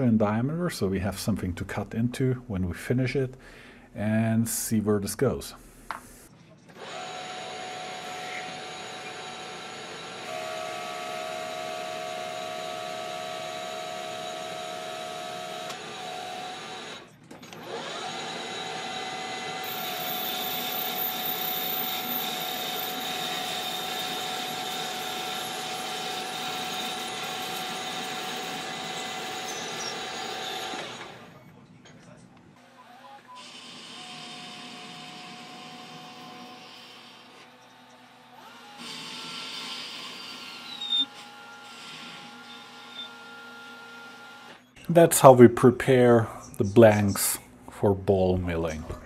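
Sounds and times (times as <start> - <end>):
metal lathe whining: 6.8 - 31.4, 32.8 - 44.7.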